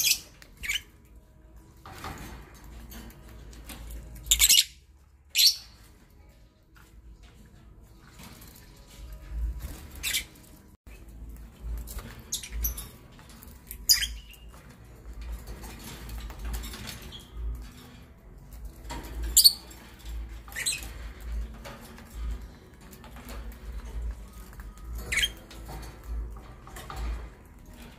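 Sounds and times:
lovebirds chirping shrilly: 4.3s - 5.8s, 13.7s - 14.6s.

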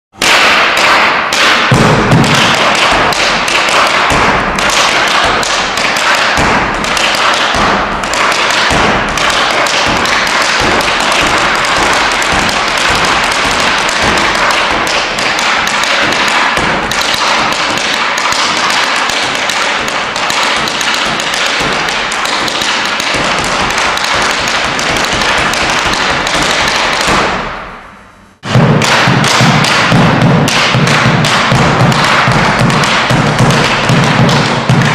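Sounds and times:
bass drum beating: 1.7s - 5.8s, 6.4s - 15.2s, 28.4s - 34.9s.

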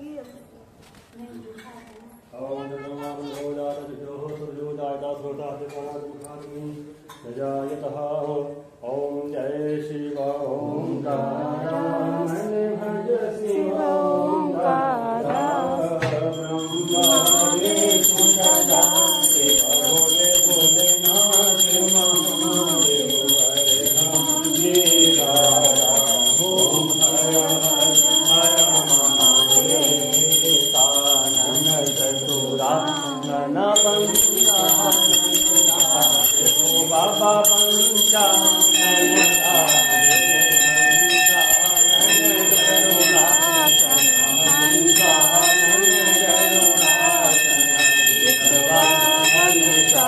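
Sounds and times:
man singing a hymn: 3.5s - 50.0s
hand bell ringing rapidly: 16.3s - 50.0s.

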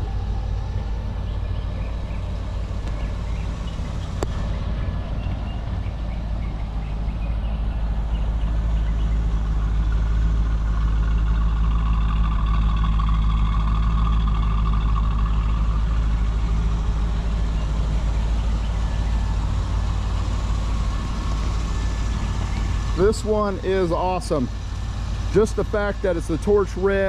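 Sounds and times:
car engine idling: 0.0s - 27.0s.

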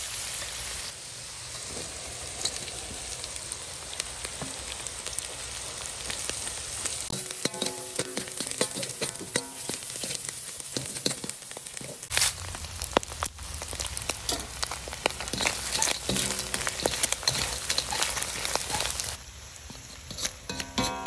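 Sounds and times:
food sizzling in hot oil: 0.0s - 21.0s
metal spatula scraping a wok: 7.1s - 12.3s, 14.3s - 21.0s.

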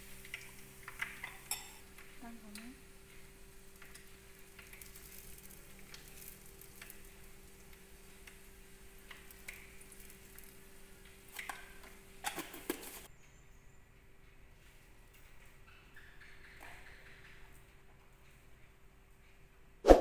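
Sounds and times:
oil sizzling in frying pan: 0.0s - 13.1s.

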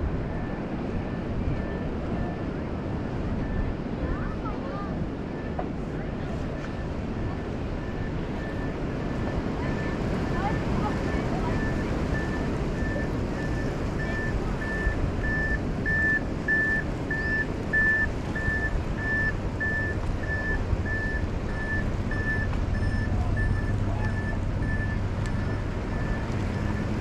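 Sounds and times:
reversing alarm beeping: 7.8s - 27.0s.

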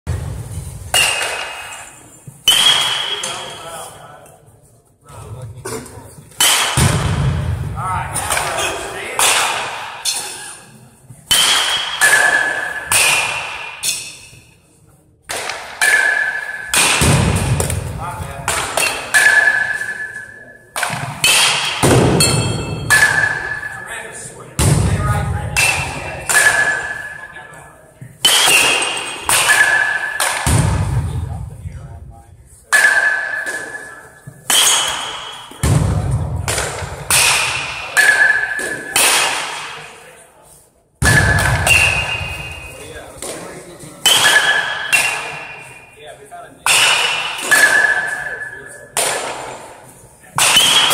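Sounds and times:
baseball bats cracking balls: 0.8s - 3.6s, 5.8s - 7.5s, 8.1s - 10.5s, 11.2s - 14.4s, 15.2s - 23.9s, 24.6s - 31.2s, 32.7s - 40.1s, 41.0s - 50.9s
metallic ringing ping: 22.2s - 23.9s.

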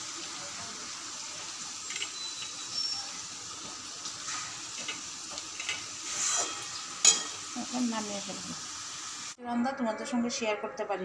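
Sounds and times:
curry sizzling: 0.0s - 9.4s.

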